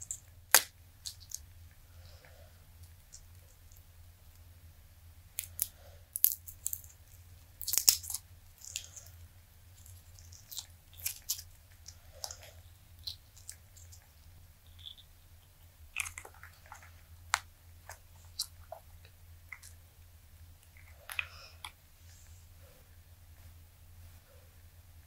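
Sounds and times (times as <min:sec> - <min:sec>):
silicone molds crackling and snapping: 0:00.0 - 0:01.5, 0:05.3 - 0:19.8.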